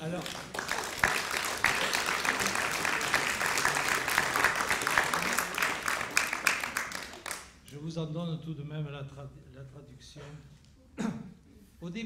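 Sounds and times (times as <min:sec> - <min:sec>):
audience applause: 0:00.0 - 0:07.6.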